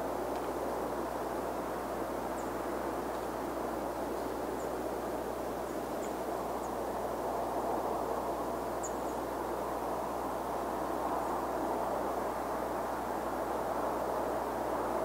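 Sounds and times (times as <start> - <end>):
steady rumbling background noise: 0.0 - 15.0
small birds chirping: 8.6 - 9.3.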